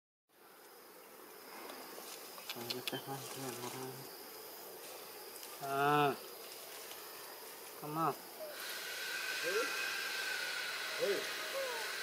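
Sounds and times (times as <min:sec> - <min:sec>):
insects buzzing: 0:00.3 - 0:12.0
sharp clicks: 0:02.4 - 0:03.0.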